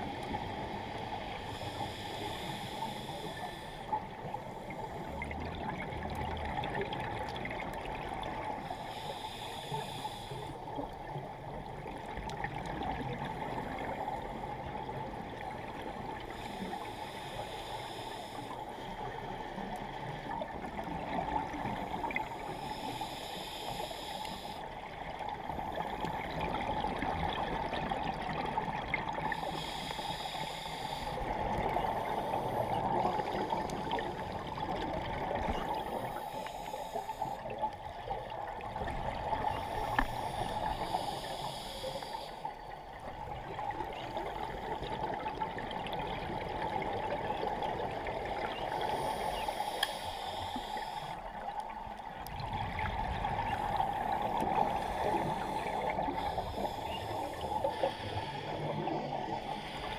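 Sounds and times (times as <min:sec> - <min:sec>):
underwater bubbling: 0:00.0 - 0:59.9
scuba regulator breathing hiss: 0:00.9 - 0:05.1, 0:08.6 - 0:10.6, 0:16.3 - 0:18.9, 0:22.2 - 0:24.8, 0:29.3 - 0:33.9, 0:35.8 - 0:37.5, 0:39.6 - 0:42.5, 0:48.3 - 0:51.4, 0:53.8 - 0:59.9.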